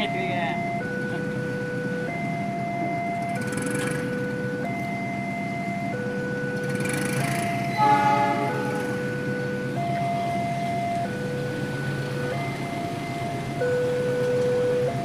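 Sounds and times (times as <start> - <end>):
low engine rumble: 0.0 - 15.0
two-tone crossing alarm: 0.0 - 15.0
horn blast: 7.7 - 9.1.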